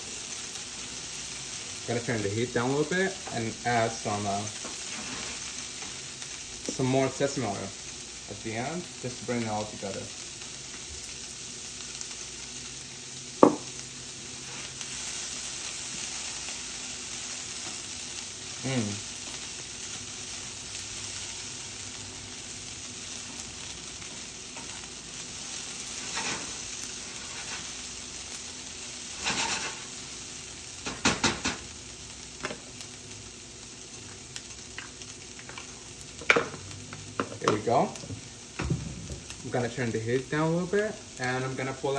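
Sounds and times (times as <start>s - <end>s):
vegetables sizzling in a skillet: 0.0s - 41.9s
spatula scraping a pan: 4.8s - 5.5s, 29.1s - 29.9s.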